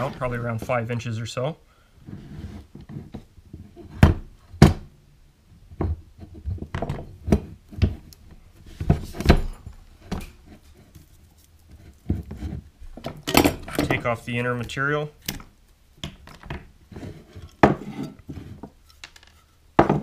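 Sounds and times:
cord and tools knocking on workbench: 18.6s - 20.0s.

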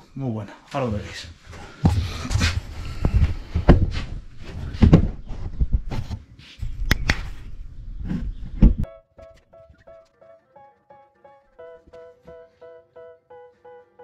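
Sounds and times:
soft plucked music: 8.9s - 14.0s.

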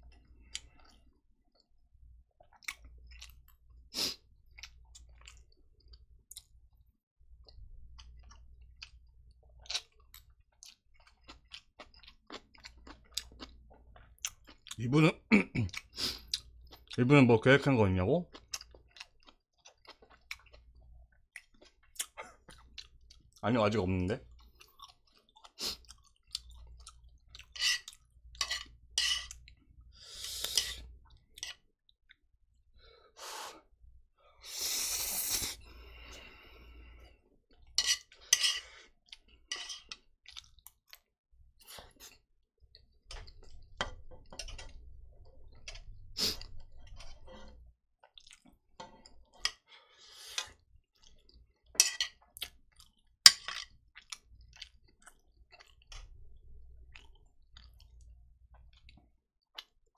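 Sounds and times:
chopsticks scraping metal pan: 27.6s - 29.4s, 37.8s - 38.7s
breathing: 29.9s - 30.8s, 32.8s - 37.2s, 38.2s - 39.0s, 49.6s - 50.6s.

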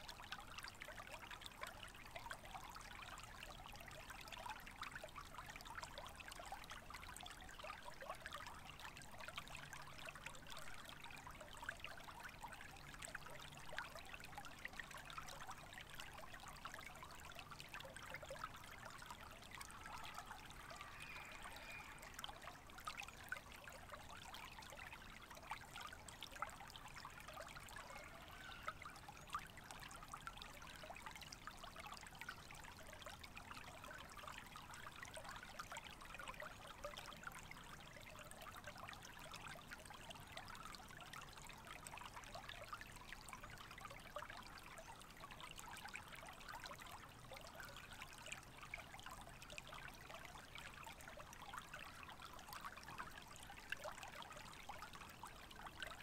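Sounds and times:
creek trickling over rocks: 0.0s - 56.0s.

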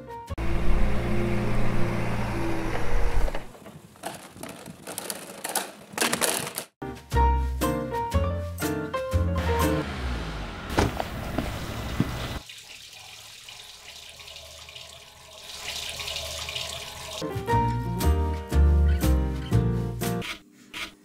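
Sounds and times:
music: 0.0s - 0.4s, 6.8s - 9.9s, 17.2s - 20.5s
tap water running into sink: 12.0s - 17.2s.

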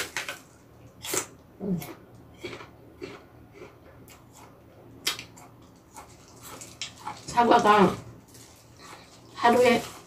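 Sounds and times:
apple crunching: 0.0s - 10.0s
close chewing with crunches: 0.9s - 10.0s.

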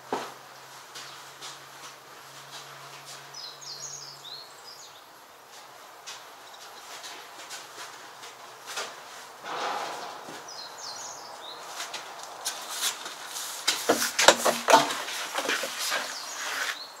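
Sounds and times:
handling clicks and knocks: 13.7s - 16.2s.

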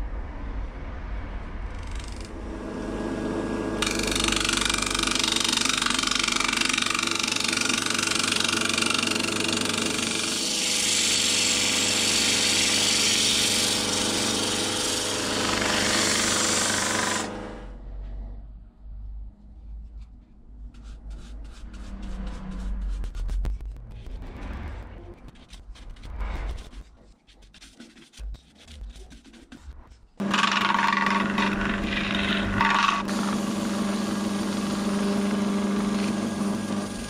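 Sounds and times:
lathe humming: 2.4s - 17.6s, 30.2s - 37.0s
turning tool scraping wood: 3.8s - 17.3s, 20.7s - 24.2s, 25.2s - 37.0s.

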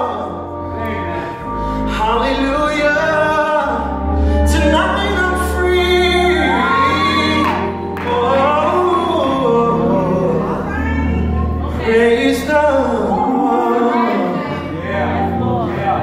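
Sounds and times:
band playing gospel music: 0.0s - 16.0s
man singing lead: 0.0s - 16.0s
sustained bass notes: 0.0s - 16.0s
backing singers: 4.8s - 16.0s.

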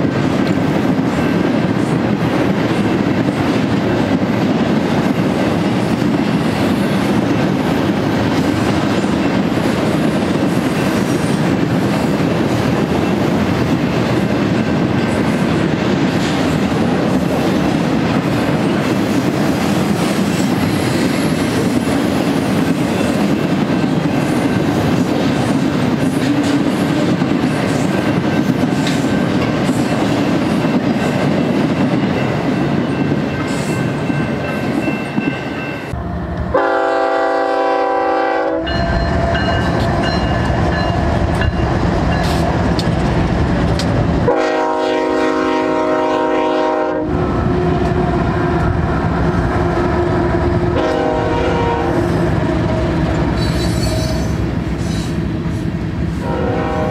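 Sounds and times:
train wheels on rails: 0.0s - 56.9s
locomotive air horn blasts: 36.5s - 39.0s, 44.3s - 47.1s, 50.8s - 52.8s, 56.2s - 56.9s.

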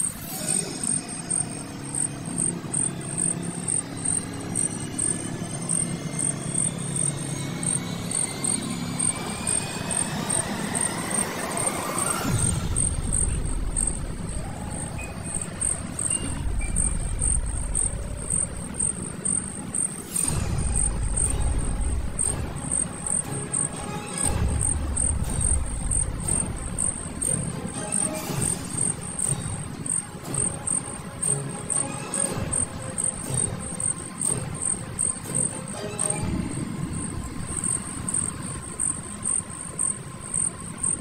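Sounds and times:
insects chirping: 0.0s - 41.0s
low rumble: 1.7s - 31.2s.

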